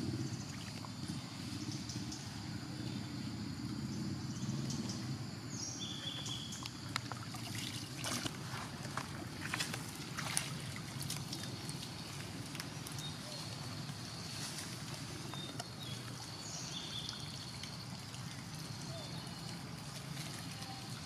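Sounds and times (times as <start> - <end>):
water sloshing and splashing: 0.0 - 1.5, 6.3 - 21.0
water dripping: 6.2 - 14.2, 14.8 - 21.0.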